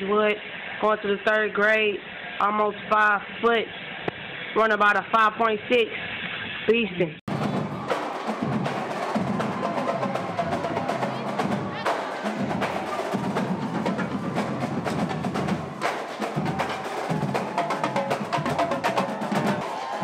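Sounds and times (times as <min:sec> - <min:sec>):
snare drums playing: 0:07.3 - 0:20.0
tenor drums playing: 0:07.3 - 0:20.0.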